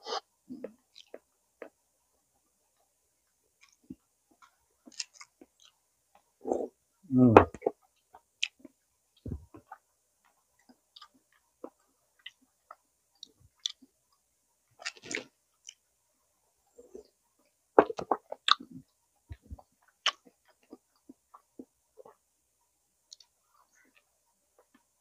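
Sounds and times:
person chewing: 0:03.6 - 0:03.8, 0:04.4 - 0:05.8, 0:10.6 - 0:13.9, 0:14.8 - 0:15.8, 0:17.8 - 0:22.2.

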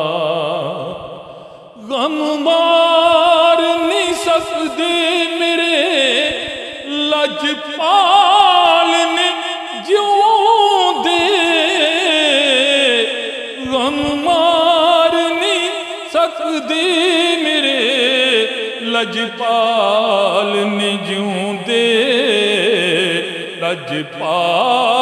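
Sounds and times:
man singing into microphone: 0:00.0 - 0:25.0
man breathing: 0:01.2 - 0:01.8.

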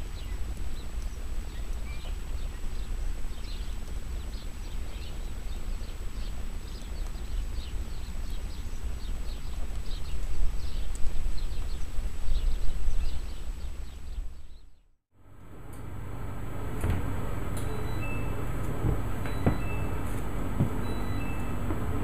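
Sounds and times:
small birds chirping: 0:00.0 - 0:14.9, 0:17.2 - 0:22.0
wind buffeting microphone: 0:15.8 - 0:22.0.

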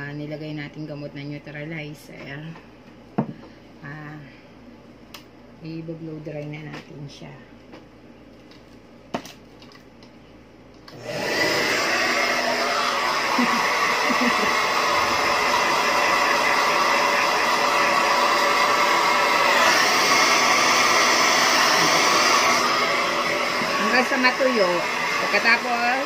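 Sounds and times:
hair dryer running: 0:10.9 - 0:26.0.

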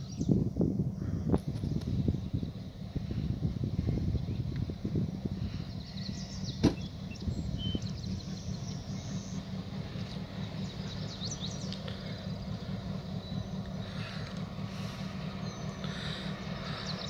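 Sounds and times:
birds chirping: 0:00.0 - 0:00.4, 0:01.0 - 0:17.0
diesel locomotives rumbling: 0:00.0 - 0:17.0.

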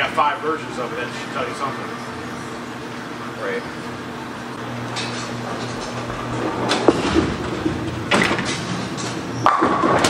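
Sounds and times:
alley machinery clattering: 0:04.6 - 0:09.3
bowling ball rolling: 0:04.6 - 0:10.0
bowling pins crashing: 0:05.0 - 0:10.0.

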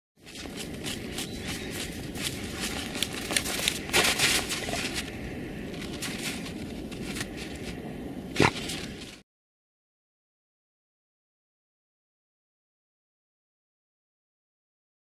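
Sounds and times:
paws scraping in snow: 0:00.2 - 0:09.2.

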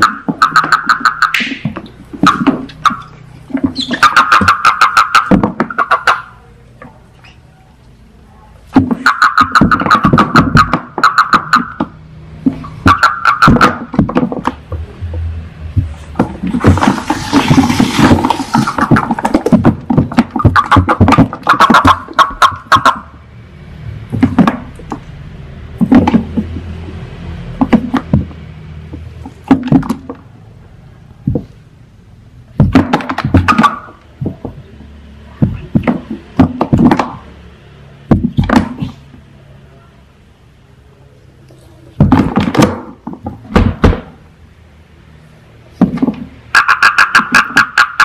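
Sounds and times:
toads croaking: 0:00.0 - 0:01.6, 0:02.2 - 0:06.4, 0:08.9 - 0:12.0, 0:12.6 - 0:14.0, 0:20.3 - 0:23.2, 0:46.5 - 0:48.0
hissing noise: 0:16.5 - 0:19.1.

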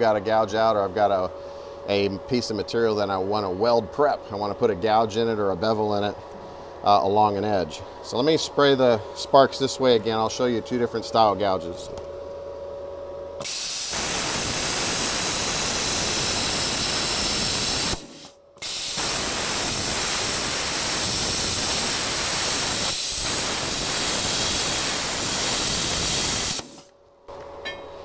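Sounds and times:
plasma cutter hissing: 0:13.4 - 0:26.9.

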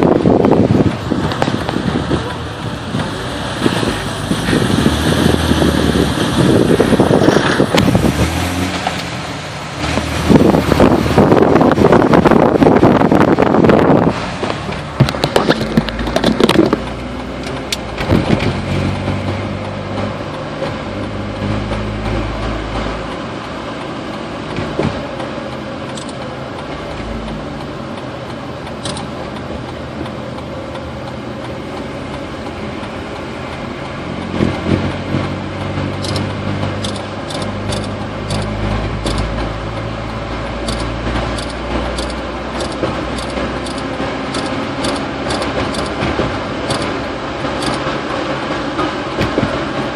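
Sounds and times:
car engine and road noise: 0:00.0 - 0:49.9
light regular ticking: 0:14.5 - 0:48.0.

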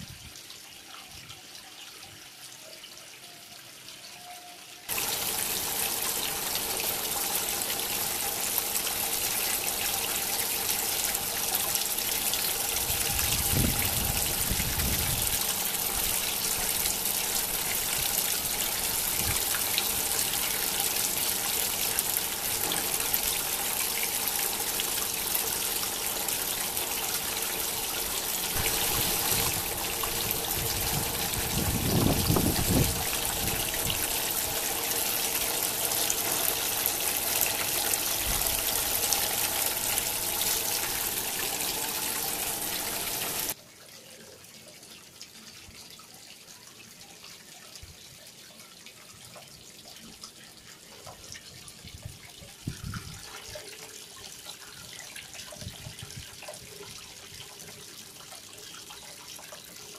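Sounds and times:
water splashing over stone ledges: 0:28.2 - 0:34.4.

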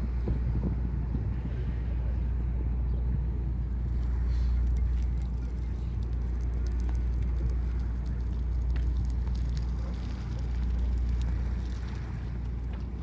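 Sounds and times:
wind buffeting microphone: 0:00.0 - 0:13.0
faint crackle: 0:04.0 - 0:13.0.

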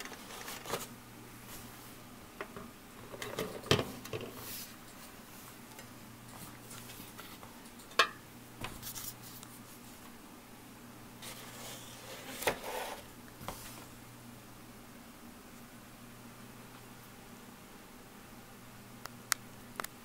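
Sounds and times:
faint steady hum: 0:00.0 - 0:20.0.

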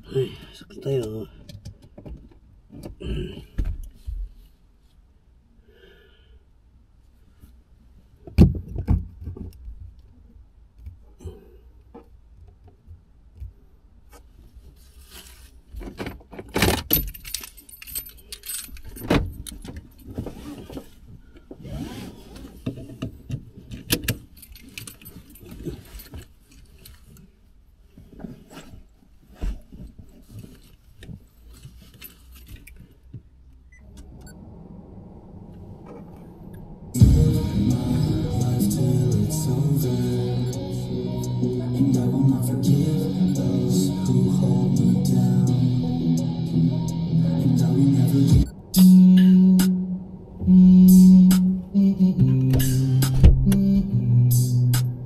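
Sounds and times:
keys jangling: 0:16.9 - 0:20.1, 0:24.1 - 0:26.1.

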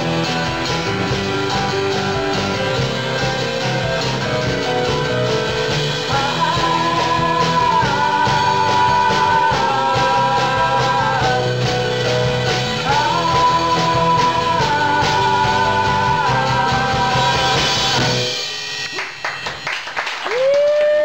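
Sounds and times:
keyboard: 0:00.0 - 0:19.7
man singing long notes: 0:06.0 - 0:11.9, 0:12.8 - 0:17.8.

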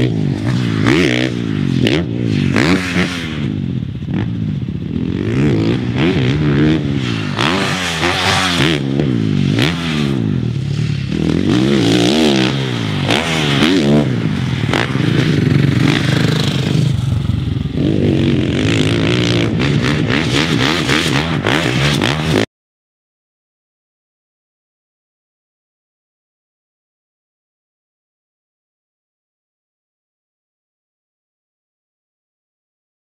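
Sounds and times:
motocross bike engine revving: 0:00.0 - 0:22.5.

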